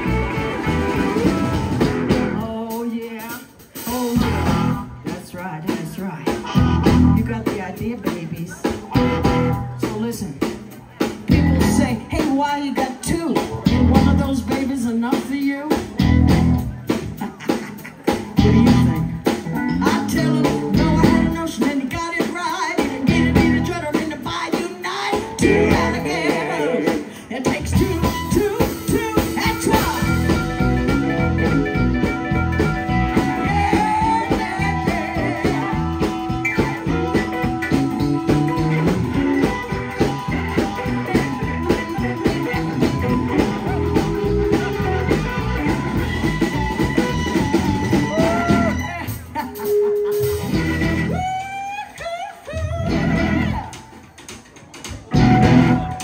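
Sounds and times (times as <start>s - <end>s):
blues harmonica: 0.0s - 2.3s, 25.2s - 53.8s, 55.1s - 56.0s
electric bass: 0.0s - 2.8s, 3.8s - 17.3s, 18.1s - 51.5s, 52.6s - 53.8s, 55.1s - 56.0s
drum kit: 0.0s - 52.0s, 52.6s - 56.0s
woman singing: 2.3s - 4.4s, 5.0s - 8.8s, 11.3s - 15.9s, 18.4s - 30.4s, 33.1s - 37.3s, 40.8s - 43.8s.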